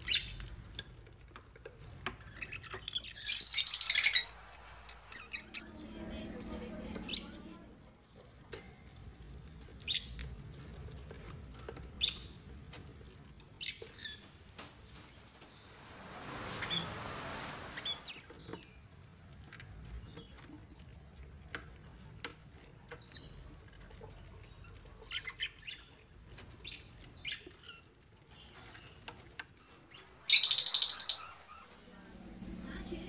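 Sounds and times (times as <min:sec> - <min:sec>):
budgerigars chirping: 0:02.4 - 0:05.6, 0:29.9 - 0:31.8
shrill bird calls: 0:02.8 - 0:05.7, 0:30.0 - 0:31.9
rustle: 0:12.8 - 0:18.7.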